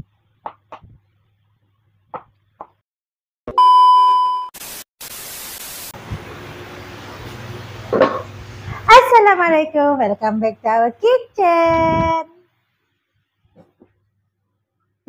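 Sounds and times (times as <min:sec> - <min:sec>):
loud steady beep: 0:03.5 - 0:04.5
static hiss: 0:04.6 - 0:07.1.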